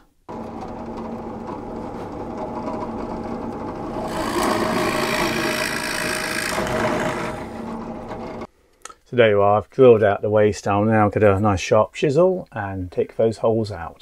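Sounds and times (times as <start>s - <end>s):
electric drill boring wood: 0.3s - 8.5s.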